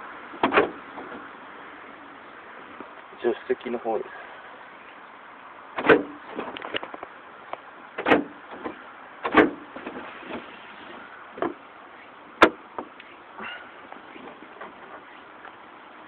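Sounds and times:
car door lock clunking: 0:00.4 - 0:01.2, 0:05.8 - 0:06.5, 0:08.0 - 0:10.4, 0:12.4 - 0:13.0
car door lock clicking: 0:05.8 - 0:06.1, 0:08.0 - 0:09.6.

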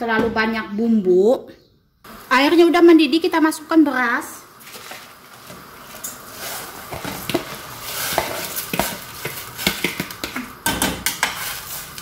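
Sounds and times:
boiling water bubbling: 0:04.4 - 0:12.0.

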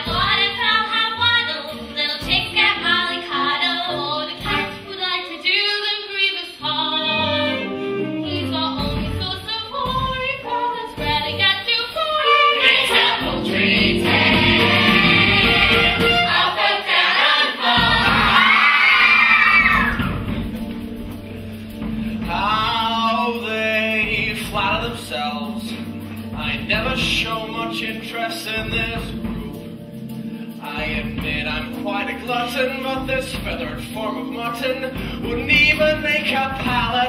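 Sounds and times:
chorus singing: 0:10.8 - 0:29.8.

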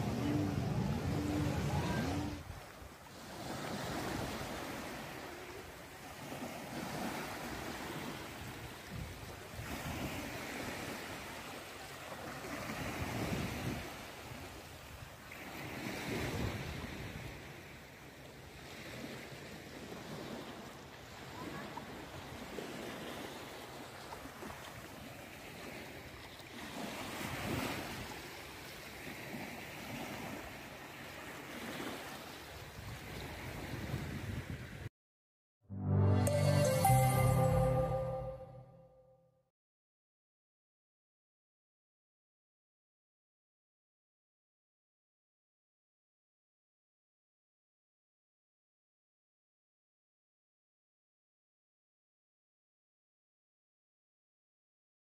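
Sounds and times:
sea waves rushing: 0:00.0 - 0:17.7.

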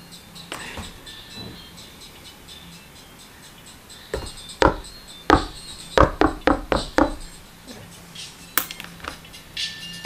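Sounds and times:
sharp knocks and taps: 0:04.1 - 0:07.3.

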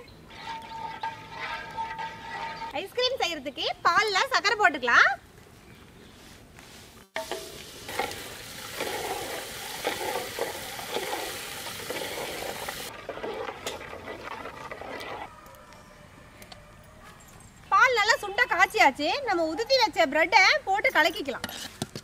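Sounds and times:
ladle stirring and scraping pot: 0:00.0 - 0:03.0, 0:07.1 - 0:15.3, 0:21.1 - 0:22.0
sugar pouring hiss: 0:07.2 - 0:12.9.

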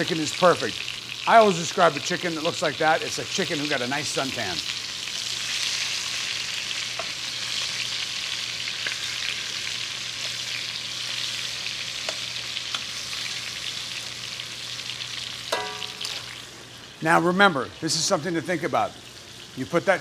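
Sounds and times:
chicken sizzling in oil: 0:00.0 - 0:20.0
metal tongs clicking: 0:15.5 - 0:16.3.

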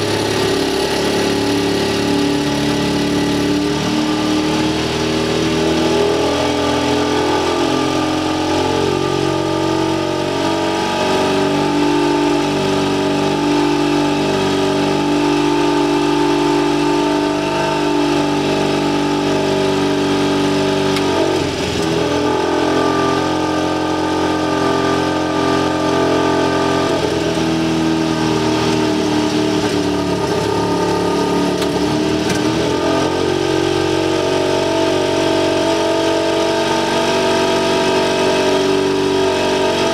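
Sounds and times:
aircraft engine running: 0:27.0 - 0:32.7.

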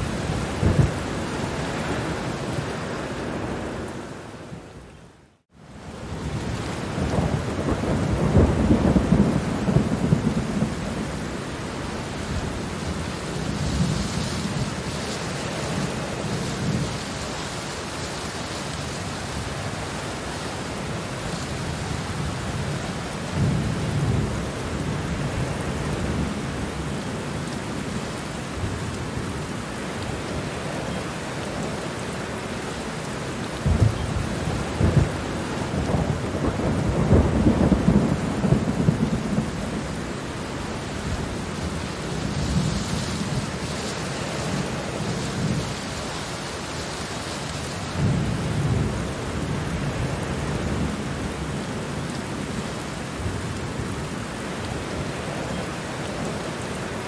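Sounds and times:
thunder rumbling: 0:00.0 - 0:04.7, 0:06.0 - 0:17.1, 0:33.5 - 0:54.1
steady rain falling: 0:00.0 - 0:57.0.

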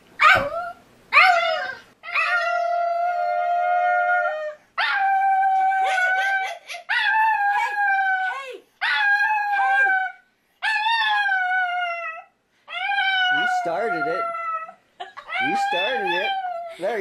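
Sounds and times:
small dog howling: 0:00.2 - 0:16.7.

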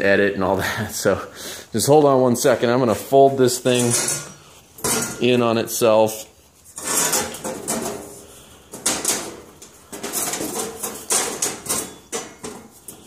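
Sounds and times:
panel rustling and knocking: 0:06.9 - 0:08.1, 0:08.7 - 0:13.0.

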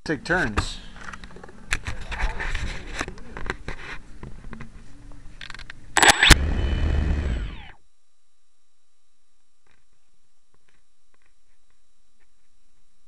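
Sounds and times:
camera handling rubbing and scraping: 0:01.0 - 0:04.7.

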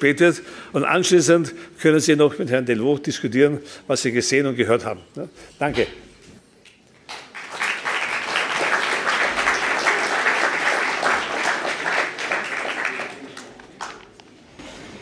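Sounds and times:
audience applauding: 0:07.1 - 0:14.2.

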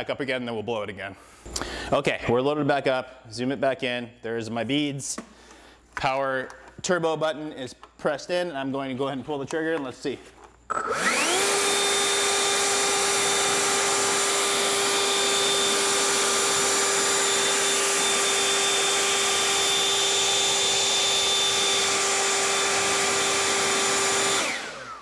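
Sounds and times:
leaf blower whine: 0:10.7 - 0:25.0.

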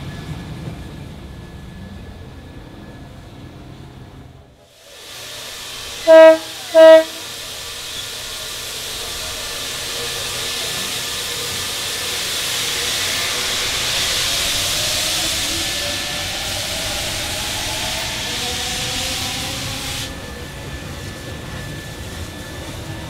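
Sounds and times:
steam locomotive hissing: 0:04.6 - 0:23.0.

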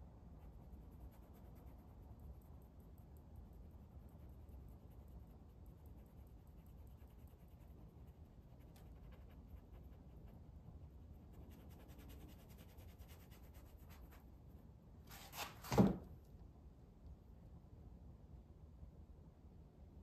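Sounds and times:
low room hum: 0:00.0 - 0:20.0
paintbrush scratching on canvas: 0:00.4 - 0:14.3
small scrapes: 0:15.0 - 0:15.8.

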